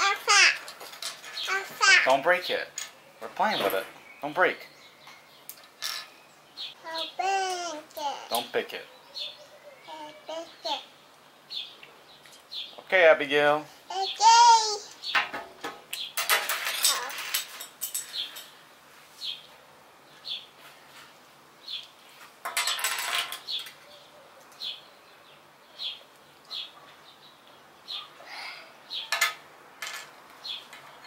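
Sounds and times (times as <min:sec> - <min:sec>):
plastic toy pieces rattling: 0:16.3 - 0:18.1.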